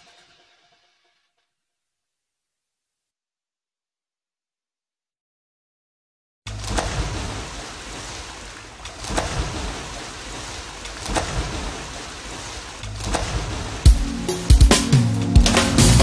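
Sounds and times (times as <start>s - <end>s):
water splashing: 6.5s - 14.6s
wind: 6.5s - 15.4s
rushing water: 6.5s - 16.0s.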